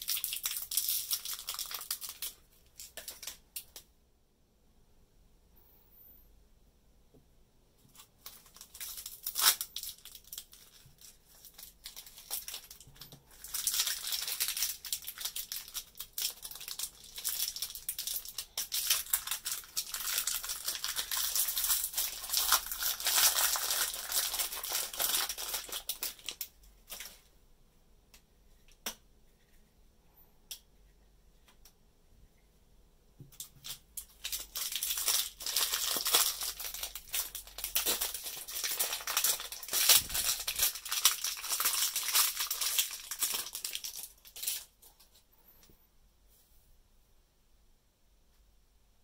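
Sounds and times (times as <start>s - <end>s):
toy wrapping crackling: 0.0s - 3.9s, 7.9s - 27.3s, 33.4s - 45.2s.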